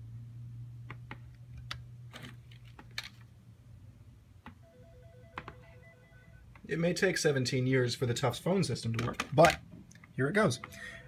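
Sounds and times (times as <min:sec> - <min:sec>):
electronic telephone ring: 0:04.6 - 0:06.5.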